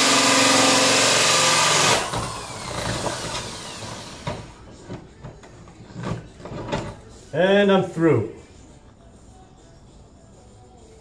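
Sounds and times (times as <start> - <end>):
power drill cutting wood: 0.0 - 4.6.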